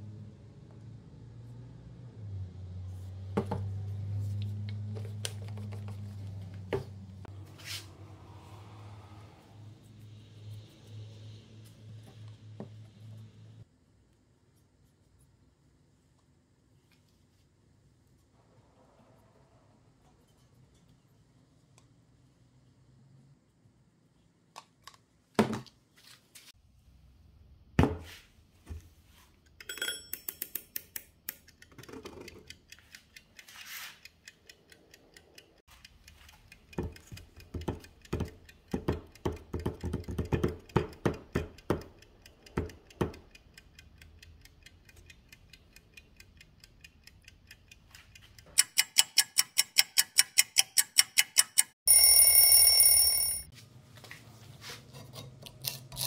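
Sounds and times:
kitchen timer ratcheting clicks: 0:29.5 - 0:53.0
knocks and clinks: 0:29.6 - 0:30.8
timer bell ringing: 0:29.7 - 0:30.2, 0:51.9 - 0:53.5.

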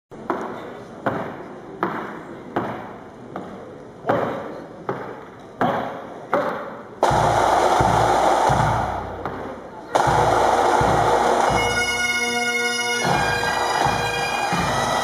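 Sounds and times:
drum beating steady strokes: 0:07.0 - 0:15.0.

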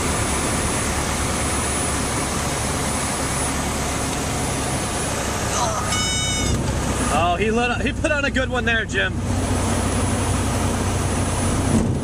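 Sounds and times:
airplane engine and propeller hum: 0:00.0 - 0:12.0.

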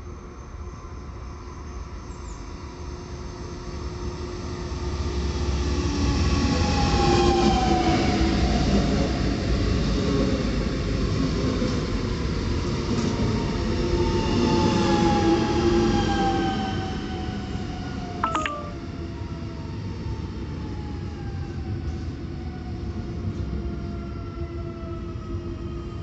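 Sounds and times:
sharp double beep: 0:18.2 - 0:18.8.

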